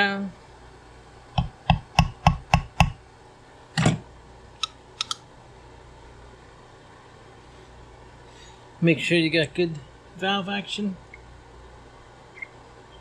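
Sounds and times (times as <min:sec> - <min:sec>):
heavy knock: 0:01.4 - 0:03.0.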